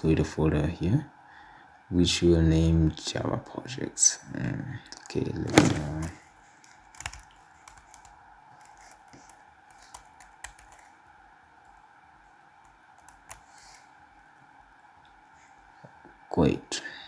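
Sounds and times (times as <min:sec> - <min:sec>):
faint keyboard typing: 0:04.9 - 0:11.0, 0:12.6 - 0:13.9.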